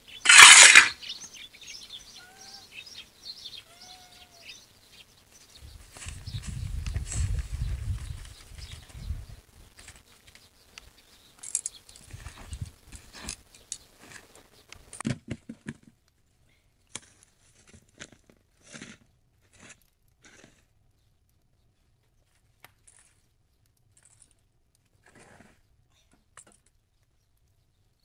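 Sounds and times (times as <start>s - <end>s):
metal rod scraping through ashes: 0.2s - 1.0s.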